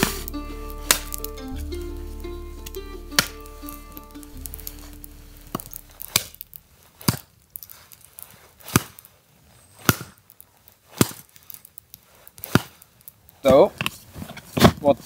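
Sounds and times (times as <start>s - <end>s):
hatchet chopping firewood: 0.0s - 1.4s, 8.6s - 9.1s, 9.8s - 10.2s, 10.9s - 11.6s.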